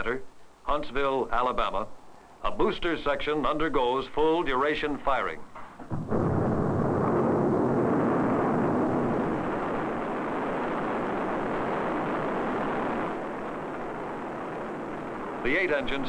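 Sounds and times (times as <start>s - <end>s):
rocket engines roaring: 6.0s - 16.0s.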